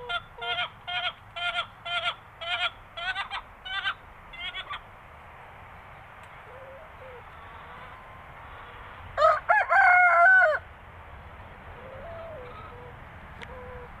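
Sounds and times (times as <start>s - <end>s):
chickens clucking: 0.0s - 4.9s, 11.8s - 14.0s
rooster crowing: 9.2s - 10.7s.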